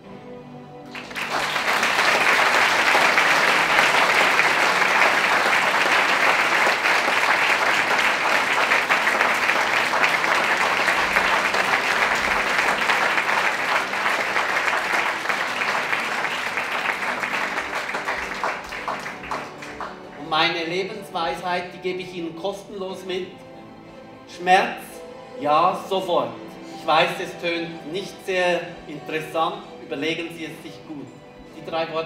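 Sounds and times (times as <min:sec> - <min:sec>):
audience applauding: 0:00.9 - 0:20.3.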